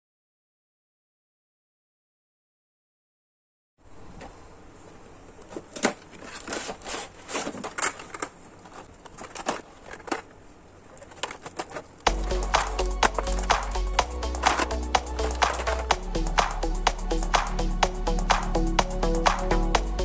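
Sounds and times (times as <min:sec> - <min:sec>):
background music: 0:12.1 - 0:20.0.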